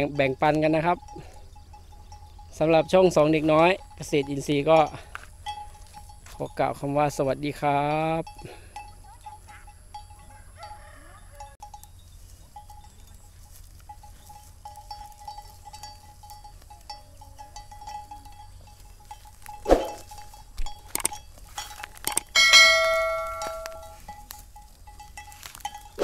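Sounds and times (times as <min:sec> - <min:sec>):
sharp clicks: 0:20.9 - 0:21.2, 0:22.0 - 0:22.4
ringing bell-like chime: 0:22.3 - 0:26.0
faint pulsing high tone: 0:22.4 - 0:24.2.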